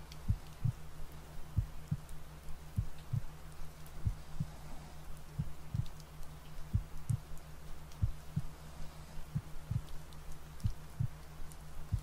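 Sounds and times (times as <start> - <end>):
faint rain-like hiss: 0.0 - 12.0
steady low hum: 0.0 - 12.0
heartbeat double thumps: 0.3 - 0.8, 1.6 - 2.1, 2.8 - 3.3, 4.0 - 4.6, 5.4 - 6.0, 6.7 - 7.3, 8.0 - 8.6, 9.3 - 9.9, 10.6 - 11.2.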